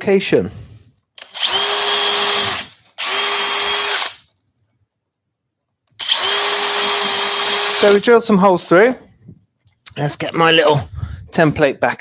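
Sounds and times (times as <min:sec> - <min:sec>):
cordless drill boring through wood: 0:01.2 - 0:04.3, 0:06.0 - 0:08.1.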